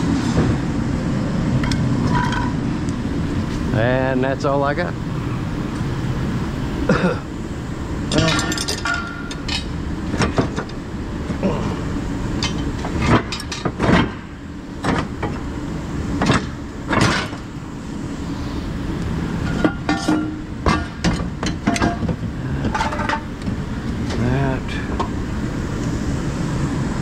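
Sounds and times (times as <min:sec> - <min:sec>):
steady low rumble: 0:00.0 - 0:27.0
metal parts clanking together: 0:08.1 - 0:10.7, 0:19.5 - 0:23.3.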